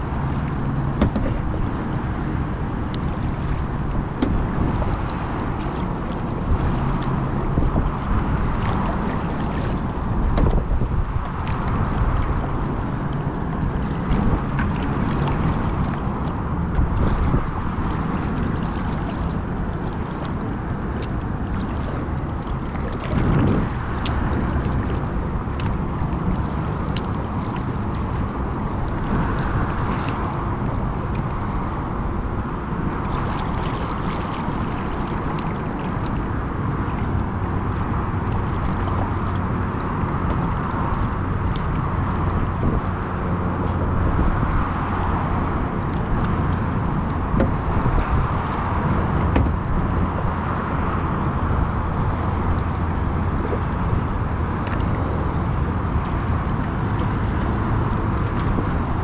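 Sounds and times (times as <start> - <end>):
water splashing against a kayak: 0.0 - 59.0
wind rumble on microphone: 0.0 - 59.0
water drips: 0.1 - 32.0.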